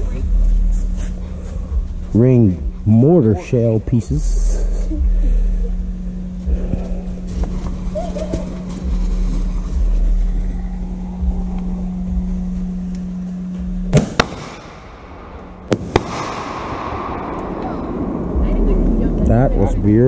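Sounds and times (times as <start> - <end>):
steady low hum: 0.0 - 20.0
firework sparks burning: 13.9 - 14.9, 15.6 - 17.7
firework bangs: 13.9 - 15.0, 15.6 - 17.9.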